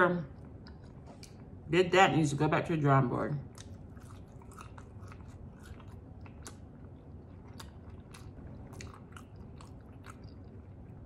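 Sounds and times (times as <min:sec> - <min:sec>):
person chewing fries: 0:00.3 - 0:01.6, 0:03.5 - 0:11.0.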